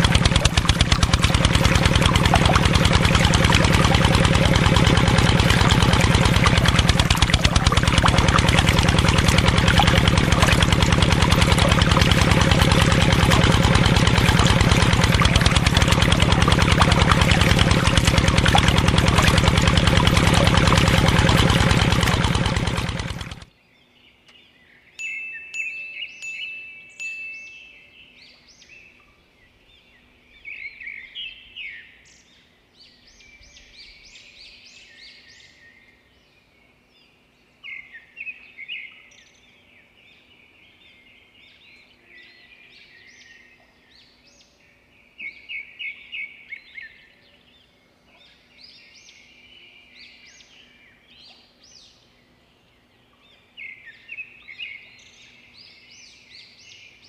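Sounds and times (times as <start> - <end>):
propeller churning water: 0.0 - 23.5
small motor running: 0.0 - 23.5.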